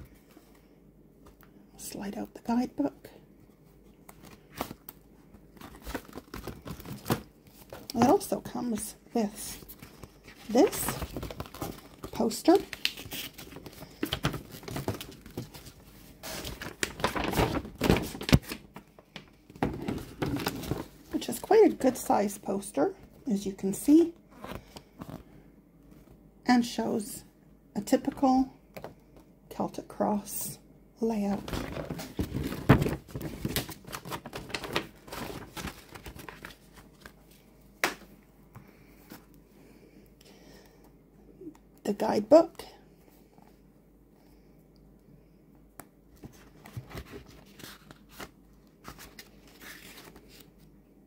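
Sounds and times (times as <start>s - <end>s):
paper rustling and crackling: 4.1s - 8.8s, 9.5s - 22.0s, 31.3s - 37.4s, 46.2s - 50.7s.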